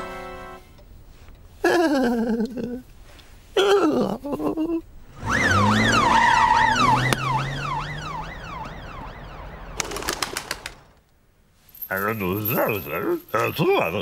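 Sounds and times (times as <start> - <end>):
police siren wailing: 5.1 - 9.9.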